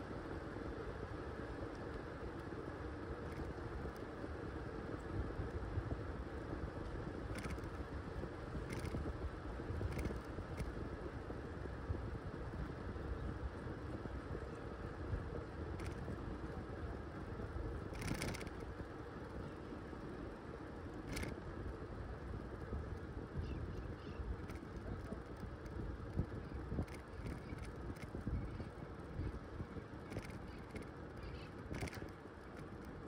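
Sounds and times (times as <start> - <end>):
bicycle tyre rumble on road: 0.0 - 33.0
wind rush on microphone: 0.0 - 33.0
sharp clicks: 17.9 - 18.6, 30.0 - 32.2.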